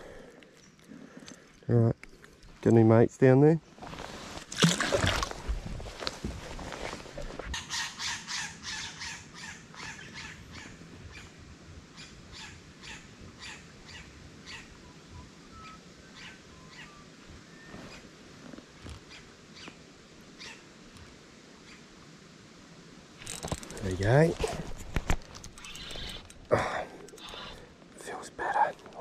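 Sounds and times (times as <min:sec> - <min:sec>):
faint whistled chirps: 0:14.8 - 0:18.0
bird harsh calls: 0:25.6 - 0:27.7.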